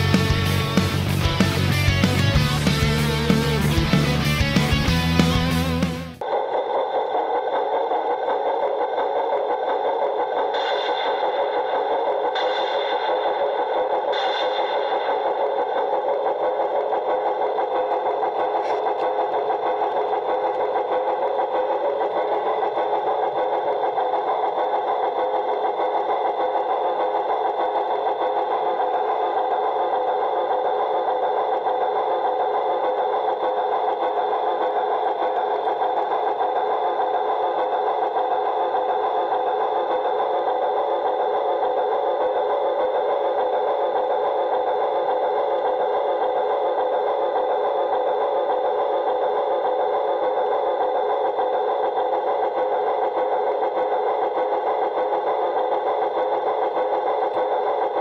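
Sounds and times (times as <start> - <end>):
model train motor whirring: 10.0 - 58.0.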